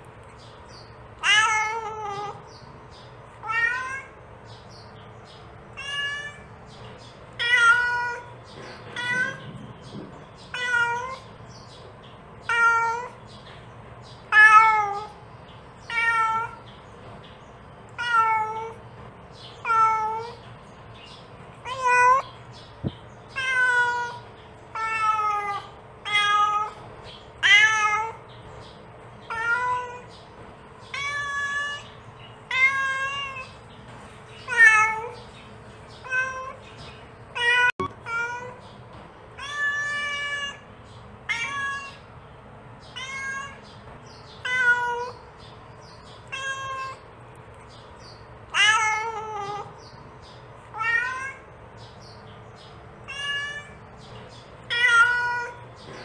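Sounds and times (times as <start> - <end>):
cat meowing: 1.2 - 2.5, 3.4 - 4.2, 5.8 - 6.5, 7.4 - 8.3, 8.9 - 9.6, 10.4 - 11.3, 12.4 - 13.2, 14.3 - 15.2, 15.8 - 16.7, 17.9 - 18.8, 19.6 - 20.4, 23.3 - 26.8, 27.4 - 28.2, 29.3 - 30.1, 30.9 - 33.6, 34.4 - 35.2, 36.0 - 36.6, 37.3 - 38.6, 39.4 - 42.1, 42.9 - 43.8, 44.4 - 45.2, 46.2 - 47.0, 48.5 - 49.8, 50.7 - 51.5, 53.0 - 53.8, 54.6 - 55.7.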